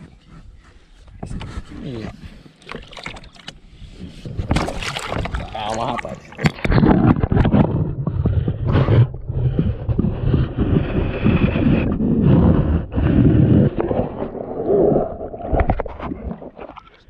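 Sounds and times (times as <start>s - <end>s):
water sloshing underwater: 0.0s - 17.0s
small knocks underwater: 4.2s - 9.2s, 15.3s - 17.0s.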